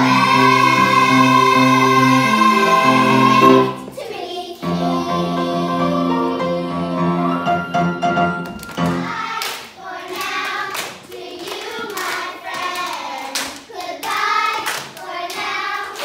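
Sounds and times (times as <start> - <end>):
piano accompaniment: 0.0 - 4.0, 4.6 - 9.4
hand claps and applause: 8.4 - 16.0.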